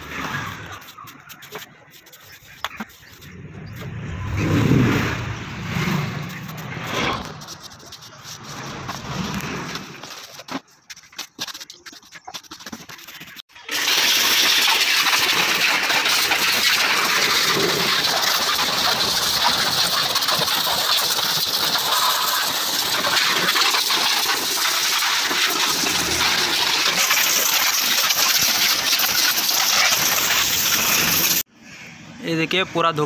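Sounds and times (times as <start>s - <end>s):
pressure washer jet hissing: 13.7s - 31.4s.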